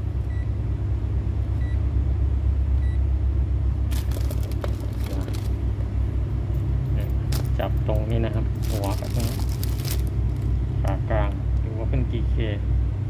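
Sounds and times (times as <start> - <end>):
test leads rustling and clicking: 3.9 - 5.6.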